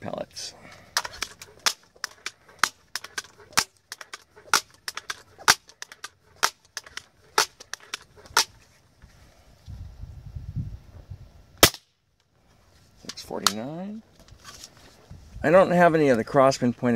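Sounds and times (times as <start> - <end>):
air rifle pump clacking: 0.9 - 8.5
air rifle shot: 11.6 - 11.9.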